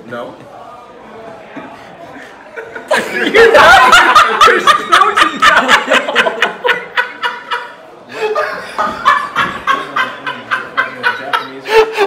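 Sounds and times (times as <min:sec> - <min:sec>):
men laughing loudly: 0:02.4 - 0:12.0.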